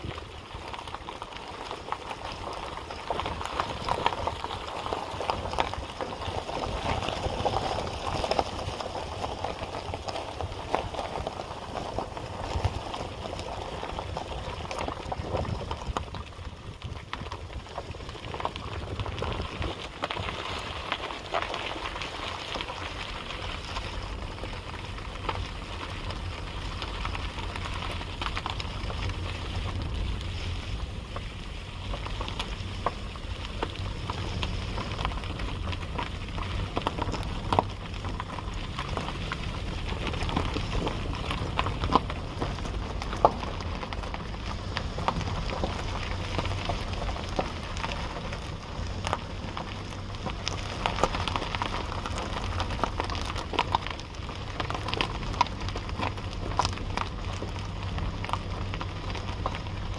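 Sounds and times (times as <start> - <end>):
wind buffeting microphone: 10.3 - 20.6.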